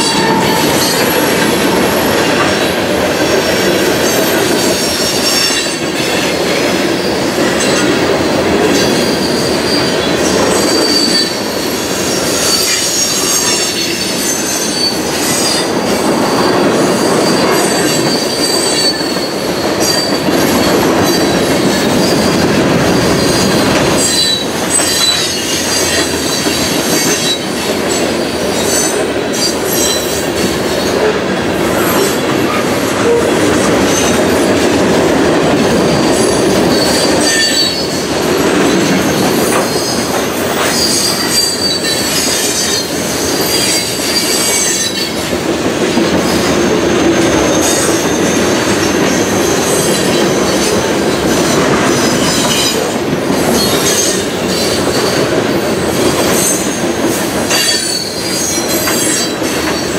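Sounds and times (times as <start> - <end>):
high wheel squeal: 0.0 - 8.0, 8.8 - 34.4, 35.8 - 45.4, 57.5 - 59.9
train wheels rumbling on rail: 0.0 - 59.9
wheels clacking on rail joints: 0.0 - 59.9.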